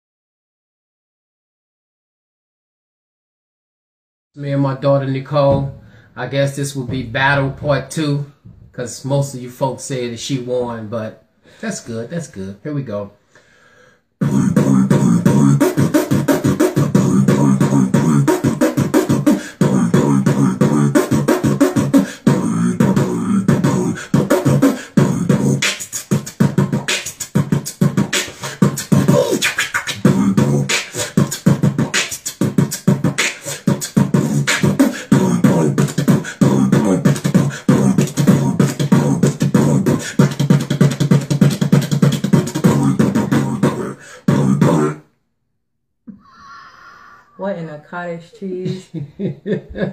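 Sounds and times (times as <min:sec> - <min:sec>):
man beatboxing: 0:14.2 - 0:45.1.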